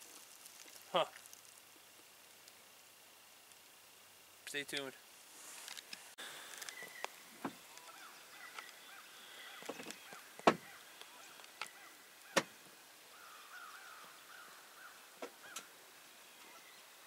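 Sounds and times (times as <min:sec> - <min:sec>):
faint bird calls: 0:06.2 - 0:17.0.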